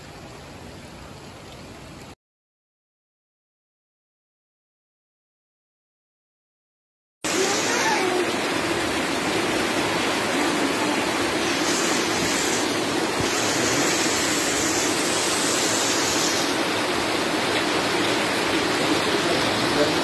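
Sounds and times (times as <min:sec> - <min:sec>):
heavy rain pouring: 0:07.2 - 0:20.0
floodwater rushing: 0:07.3 - 0:20.0.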